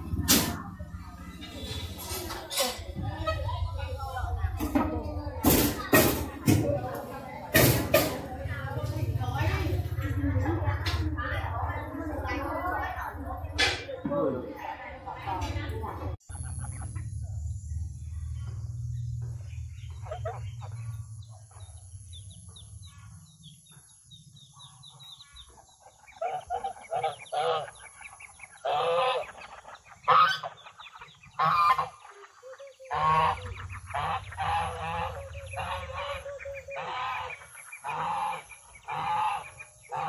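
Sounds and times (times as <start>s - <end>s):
low steady rumble: 15.1s - 23.8s, 32.9s - 40.0s
fowl honking calls: 24.6s - 40.0s.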